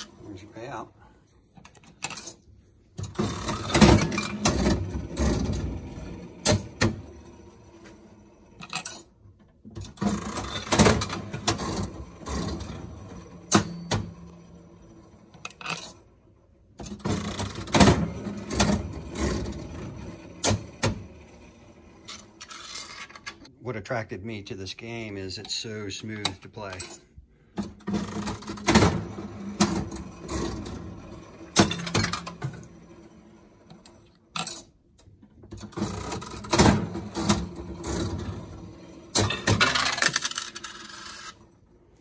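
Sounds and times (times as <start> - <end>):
slot machine reels whirring: 3.1 - 9.1, 9.9 - 16.0, 16.8 - 23.5, 27.8 - 34.6, 35.6 - 41.6.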